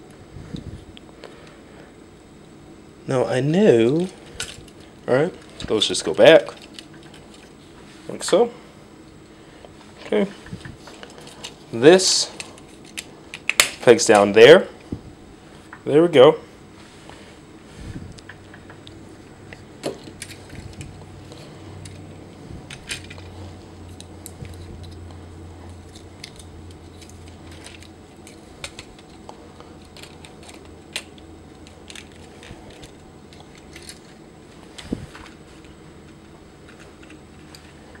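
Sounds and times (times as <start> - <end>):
sharp plastic snaps: 12.9 - 13.8.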